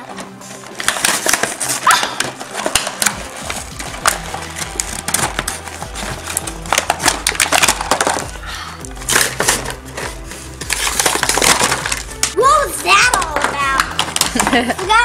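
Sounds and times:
cardboard tearing: 0.0s - 8.3s, 9.0s - 12.4s
plastic packaging crinkling: 0.0s - 15.0s.

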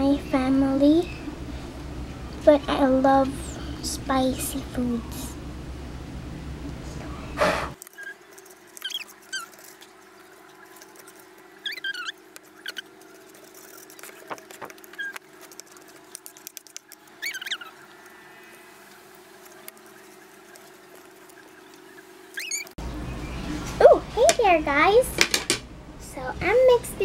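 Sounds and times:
short high squeaks: 7.9s - 9.7s, 11.6s - 12.9s, 13.6s - 15.2s, 17.2s - 17.8s, 22.3s - 22.8s.

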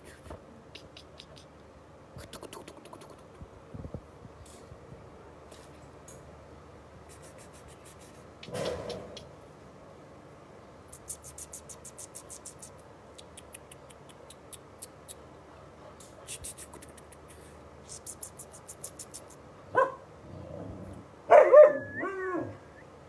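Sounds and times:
light quick ticking: 10.9s - 15.2s, 16.3s - 19.4s
puppy barking: 19.7s - 20.0s, 21.3s - 22.6s
puppy yowling: 21.3s - 22.7s.

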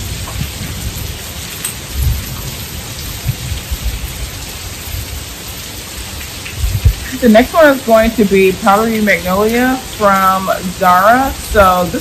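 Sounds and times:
low rumbles and thumps: 0.0s - 4.0s, 6.6s - 7.0s
heavy rain hissing: 0.0s - 12.0s.

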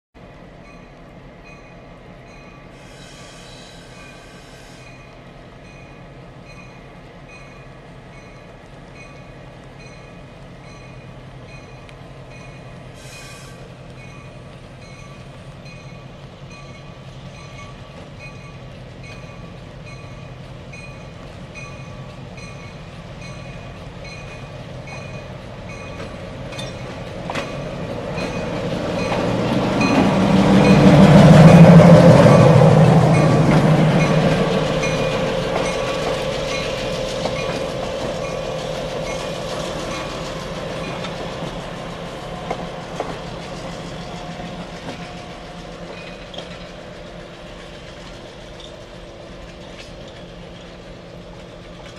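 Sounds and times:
diesel locomotive approaching: 0.2s - 51.9s
short air hisses: 2.8s - 5.0s, 12.9s - 13.7s.

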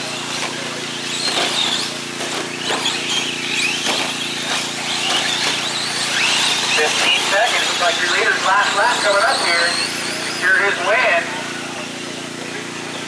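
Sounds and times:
toy truck motors whining: 0.0s - 13.0s.

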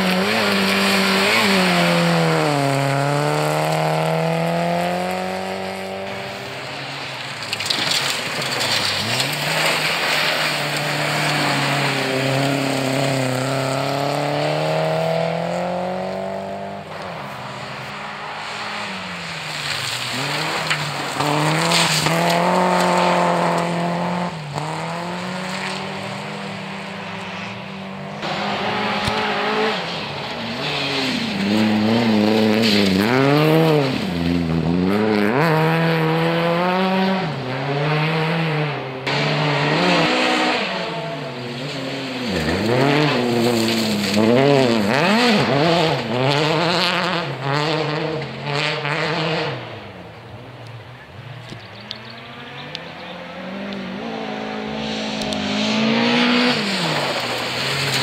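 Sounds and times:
tyres sliding on gravel: 0.0s - 5.3s, 6.3s - 16.1s, 17.0s - 25.4s, 28.2s - 35.6s, 41.1s - 46.7s, 51.7s - 58.0s
rally car engines revving: 0.0s - 58.0s.

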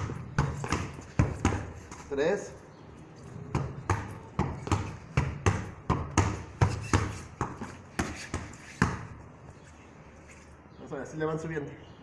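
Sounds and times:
soccer ball thuds: 0.0s - 2.1s, 3.4s - 9.2s.

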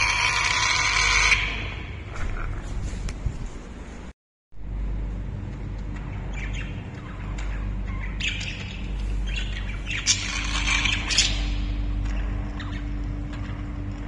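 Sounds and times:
steady low rumble: 1.6s - 14.0s
budgerigars chirping and squawking: 6.0s - 12.9s.

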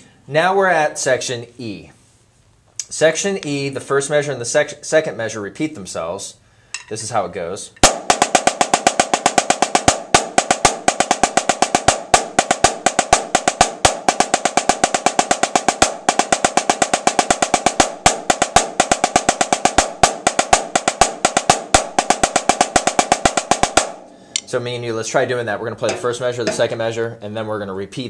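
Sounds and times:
snare drum played with sticks: 7.8s - 24.0s, 25.8s - 26.8s.

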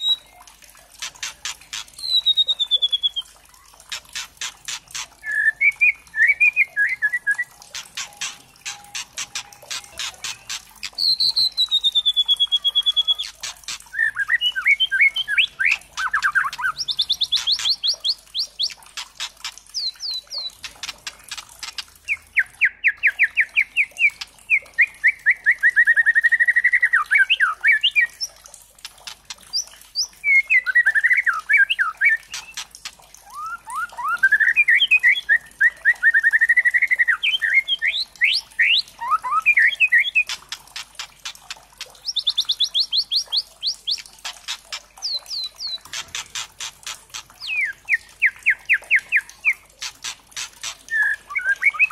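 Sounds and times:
bird clicking rattles: 0.8s - 2.2s, 3.6s - 5.3s, 7.6s - 11.8s, 12.9s - 14.0s, 15.6s - 22.2s, 28.6s - 30.0s, 32.2s - 33.2s, 40.2s - 47.6s, 49.8s - 51.0s
bird trilled phrases: 1.0s - 25.3s, 36.2s - 51.9s.

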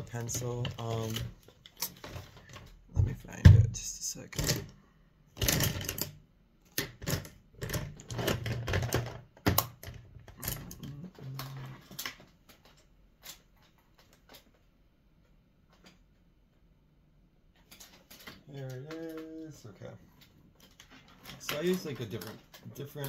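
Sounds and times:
makeup items clicking and clattering: 5.4s - 14.7s, 17.6s - 23.0s.

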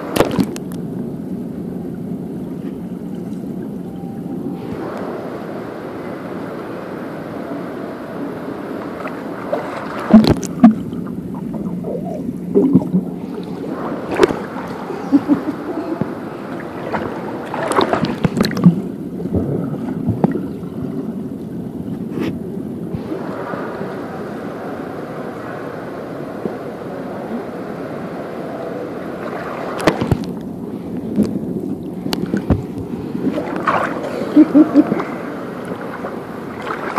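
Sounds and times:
muffled underwater rush: 0.0s - 36.9s
bubbling and splashing: 8.8s - 21.4s, 29.2s - 36.9s.

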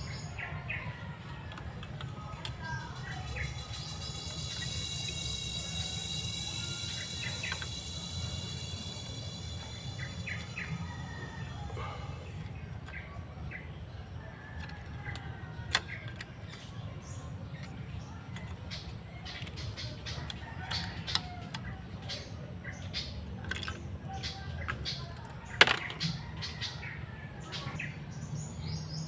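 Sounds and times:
birds chirping: 0.0s - 29.0s
steady low hum: 0.0s - 29.0s
high whine of steady tones: 3.5s - 13.0s.

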